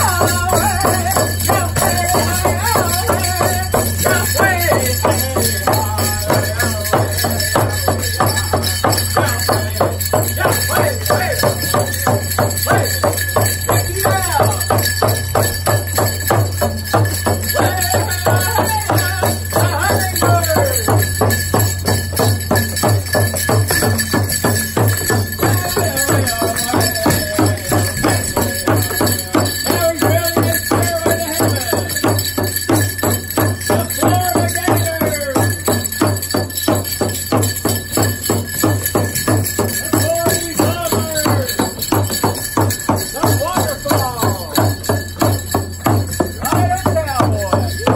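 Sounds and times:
fast steady drumbeat: 0.0s - 47.9s
person chanting: 25.4s - 32.0s.

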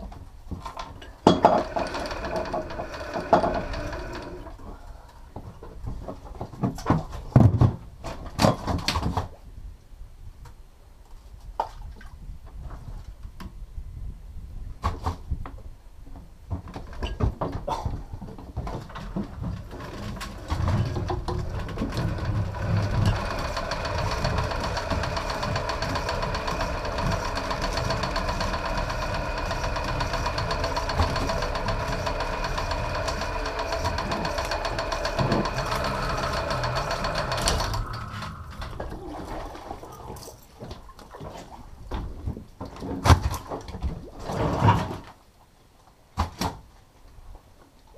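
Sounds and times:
fishing reel motor whining: 1.5s - 4.6s, 19.8s - 39.0s.

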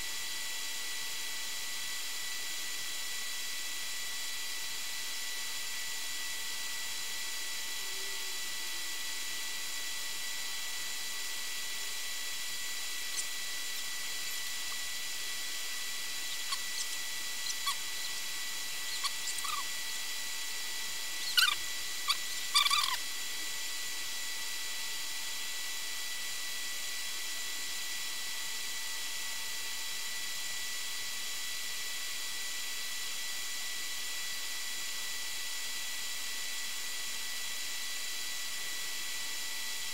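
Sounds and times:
electronic whine: 10.4s - 25.6s
small animal chirping: 13.0s - 15.1s, 16.0s - 19.9s, 21.1s - 23.0s.

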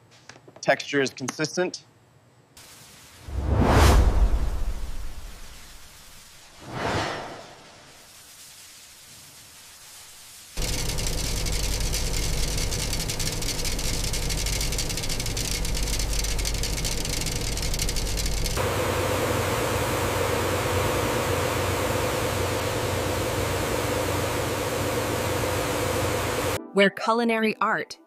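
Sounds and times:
machine hum with hiss: 7.6s - 26.6s
grains pouring into a container: 10.6s - 18.5s.

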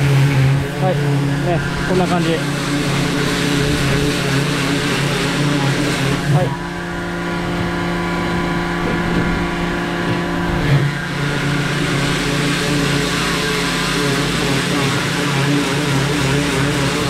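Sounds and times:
pressure washer motor hum: 0.0s - 17.0s
water jet hissing: 0.0s - 17.0s
loud knock: 8.3s - 10.3s.

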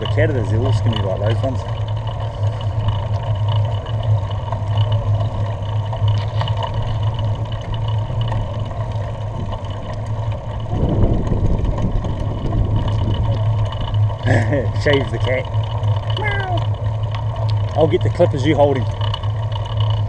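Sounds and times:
bicycle riding noise: 0.0s - 20.0s
wind rumble on microphone: 6.1s - 14.3s.

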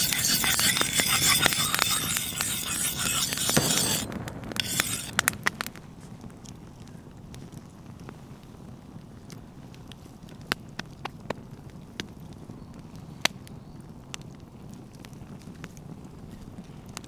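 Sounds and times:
low rush of burning fire: 0.0s - 17.0s
campfire pops and snaps: 4.0s - 8.2s, 8.9s - 17.0s.

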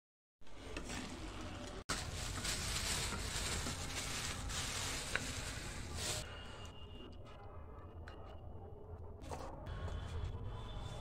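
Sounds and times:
plastic bag crinkling: 1.9s - 6.2s.

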